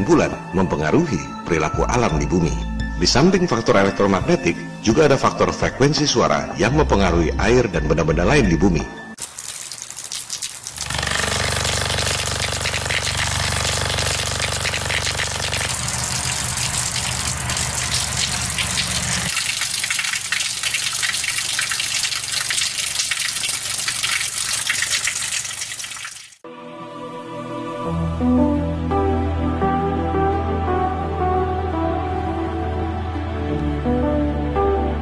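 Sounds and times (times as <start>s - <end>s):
water gushing: 9.2s - 26.4s
low steady hum: 12.1s - 19.7s.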